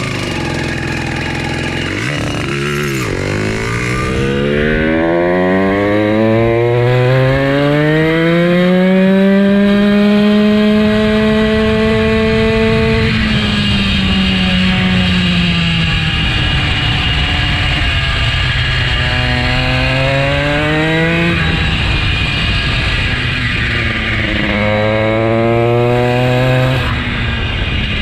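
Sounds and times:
motorized bicycle engine running: 0.0 - 4.0.

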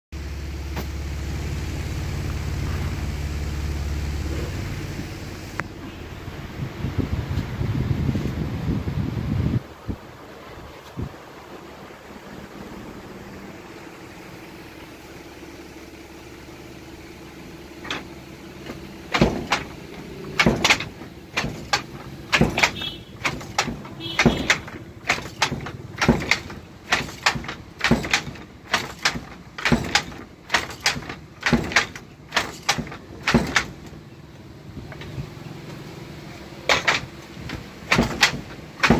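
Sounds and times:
handloom wooden clacks: 17.8 - 34.0, 36.6 - 38.9.

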